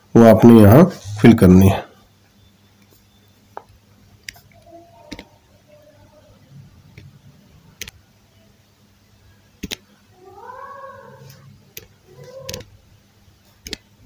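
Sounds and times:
fingertips tapping touchscreen: 3.6s - 5.3s, 9.6s - 9.8s, 11.7s - 12.7s, 13.6s - 13.9s.

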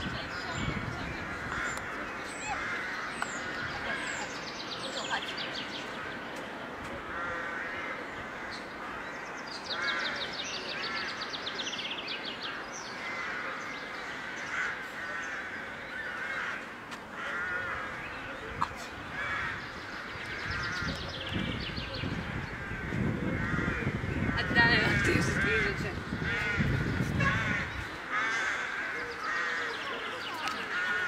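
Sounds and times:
crows cawing: 1.2s - 4.3s, 7.0s - 11.2s, 13.0s - 18.2s, 19.1s - 21.0s, 22.4s - 31.0s.

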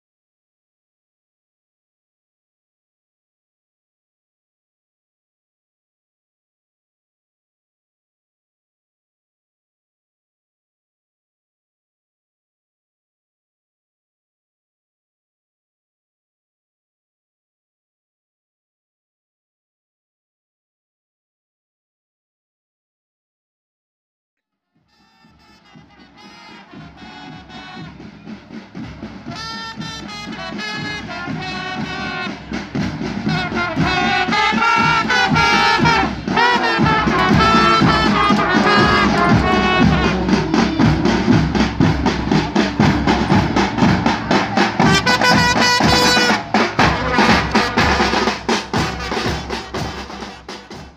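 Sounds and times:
marching band playing a march: 24.8s - 50.9s.

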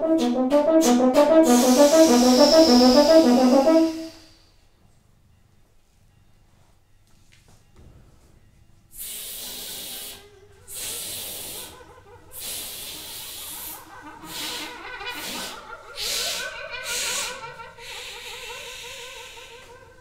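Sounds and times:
faint wavering brass pitches: 0.0s - 4.4s
air hissing through brass: 0.0s - 4.7s, 8.9s - 20.0s.

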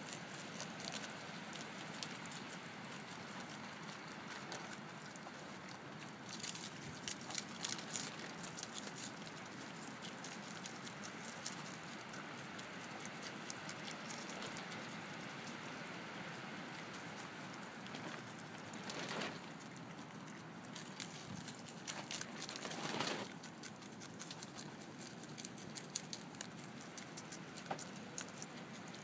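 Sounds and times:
animal chewing and crunching lettuce: 0.0s - 29.0s.

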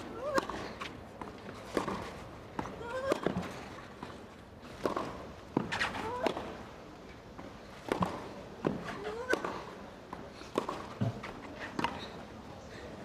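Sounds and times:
racket hitting tennis ball: 0.0s - 3.8s, 4.6s - 6.6s, 7.8s - 12.0s.

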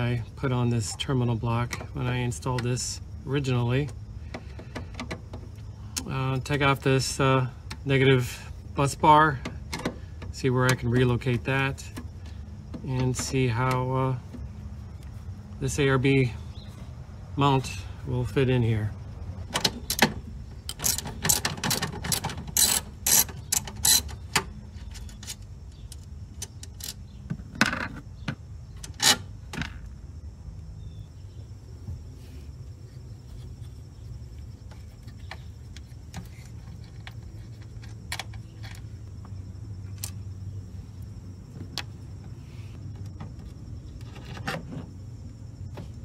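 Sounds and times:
tools clicking and knocking: 4.3s - 5.6s, 9.4s - 12.1s, 19.5s - 29.8s, 34.7s - 39.3s
socket ratchet clicking: 19.8s - 27.0s.

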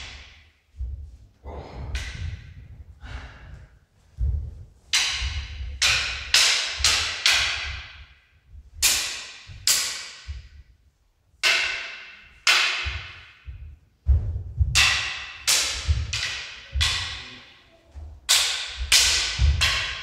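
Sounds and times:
wooden sword clashing on sword: 0.0s - 0.6s, 4.8s - 10.7s, 11.4s - 13.8s, 14.7s - 20.0s
footwork thuds on wooden floor: 12.8s - 14.8s, 18.0s - 20.0s.

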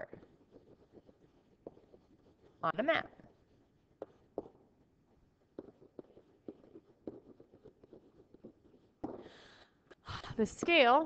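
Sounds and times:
stylus tapping tablet screen: 3.8s - 9.6s, 10.6s - 11.0s.

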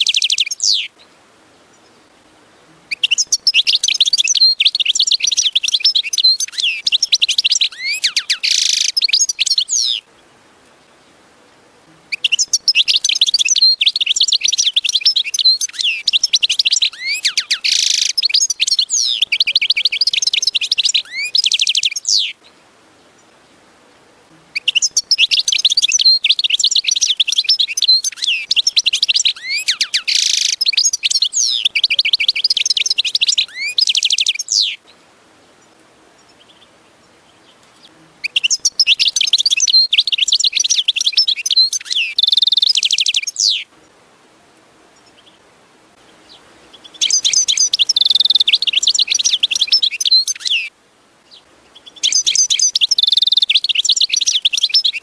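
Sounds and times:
goldfinch twittering and trilling: 0.0s - 1.0s, 2.9s - 10.1s, 12.1s - 22.4s, 24.6s - 34.8s, 37.4s - 43.6s, 46.2s - 55.0s.

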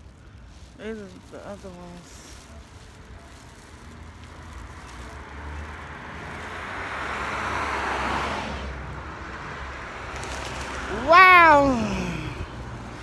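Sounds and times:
vehicle passing by: 3.8s - 13.0s.

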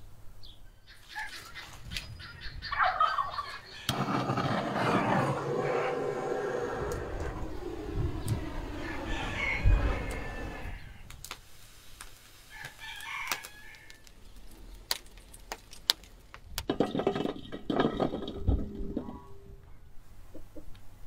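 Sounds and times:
chickens clucking: 0.9s - 11.1s
wood fire crackling: 3.9s - 19.3s
rooster crowing: 4.9s - 11.0s, 12.5s - 14.0s.

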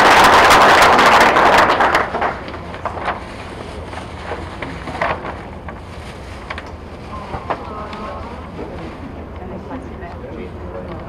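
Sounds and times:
audience applause: 0.0s - 2.7s
tissue paper rustling: 0.5s - 9.3s.

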